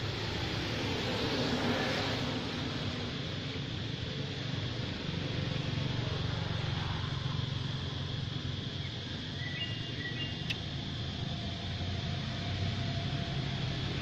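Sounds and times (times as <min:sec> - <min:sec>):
low outdoor hum: 0:00.0 - 0:14.0
faint high chirp: 0:08.8 - 0:10.6.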